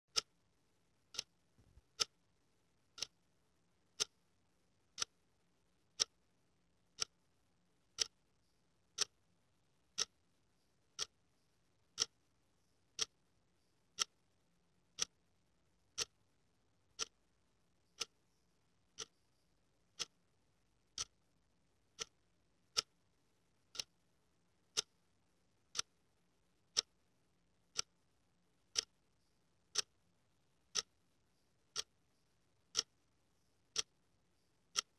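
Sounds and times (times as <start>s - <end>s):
clock ticking: 0.1s - 0.4s, 1.1s - 3.3s, 3.9s - 4.2s, 4.9s - 5.2s, 5.9s - 6.2s, 6.9s - 7.2s, 8.0s - 8.2s, 8.9s - 9.2s, 9.9s - 10.2s, 10.8s - 11.2s, 11.9s - 12.2s, 12.9s - 13.2s, 13.9s - 14.2s, 14.9s - 15.2s, 15.9s - 16.2s, 16.9s - 23.1s, 23.7s - 24.0s, 24.6s - 26.0s, 26.6s - 27.0s, 27.7s - 28.0s, 28.7s - 30.0s, 30.6s - 34.9s.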